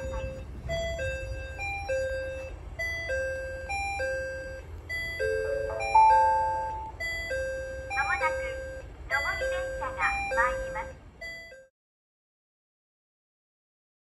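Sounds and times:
electronic chime melody: 5.0 - 7.8.

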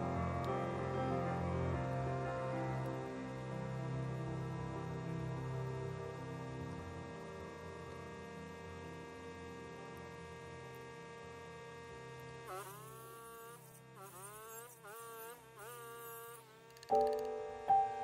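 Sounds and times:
background music tones: 0.0 - 12.4, 16.9 - 18.0.

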